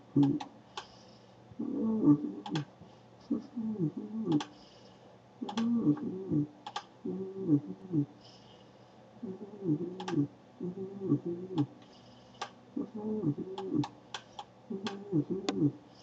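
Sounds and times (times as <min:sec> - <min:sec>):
low muffled voice-like sound: 0:00.0 - 0:00.5, 0:01.6 - 0:04.6, 0:05.4 - 0:08.2, 0:09.2 - 0:11.7, 0:12.8 - 0:13.9, 0:14.7 - 0:15.9
computer mouse clicks: 0:00.2 - 0:01.0, 0:02.4 - 0:02.7, 0:05.4 - 0:05.7, 0:06.6 - 0:06.9, 0:10.0 - 0:10.2, 0:11.6 - 0:12.6, 0:13.8 - 0:15.6.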